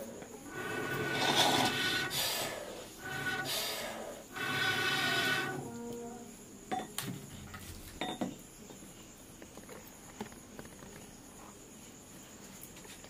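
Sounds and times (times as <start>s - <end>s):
blowing through blow pipe: 0.5s - 6.0s.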